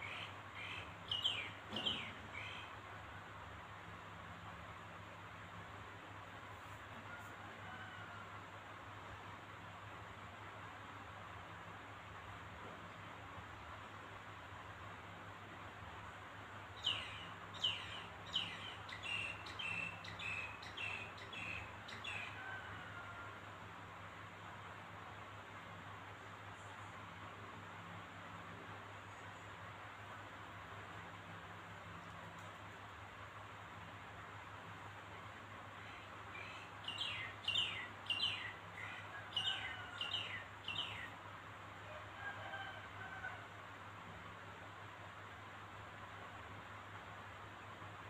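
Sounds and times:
bird chirping: 0.0 - 2.8, 16.8 - 22.4, 35.8 - 41.2
faint steady hiss: 0.0 - 48.0.

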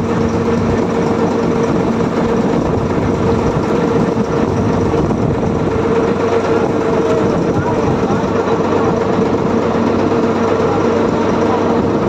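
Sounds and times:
motorboat engine running: 0.0 - 12.0.

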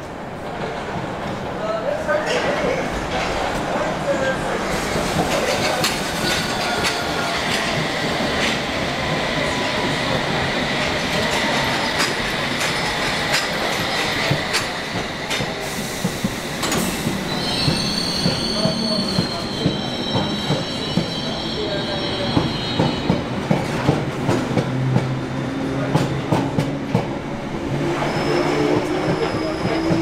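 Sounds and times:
train rumble: 0.0 - 30.0
train wheel squeal: 5.4 - 8.2, 9.2 - 23.3, 27.8 - 30.0.

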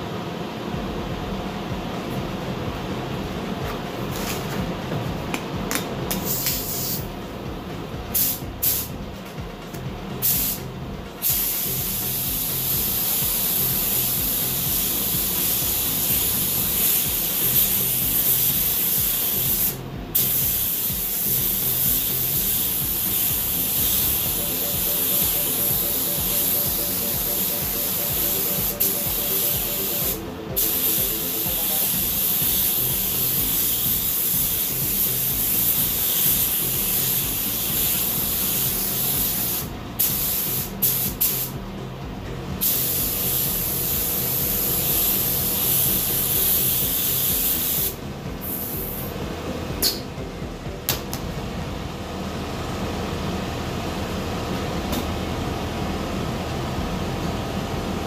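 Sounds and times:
spray gun hissing: 6.2 - 7.1, 8.2 - 8.9, 10.2 - 41.5, 42.6 - 49.1.

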